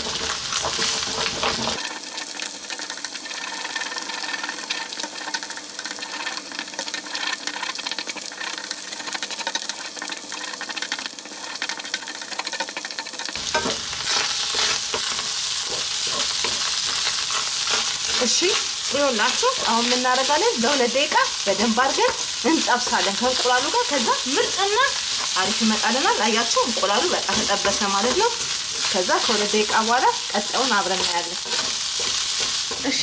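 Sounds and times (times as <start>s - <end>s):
egg sizzling in hot oil: 0.0s - 33.0s
spatula scraping and tapping pan: 11.4s - 24.1s, 24.8s - 33.0s
rice being stirred: 13.4s - 33.0s.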